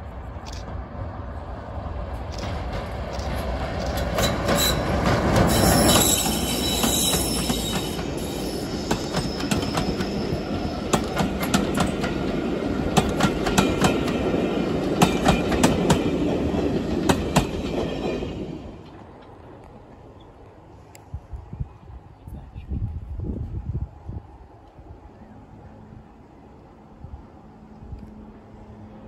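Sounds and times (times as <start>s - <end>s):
diesel locomotive engine passing: 0.0s - 22.2s, 23.1s - 29.0s
wheels clicking over rail joints: 2.2s - 20.0s
high wheel squeal: 4.2s - 10.8s.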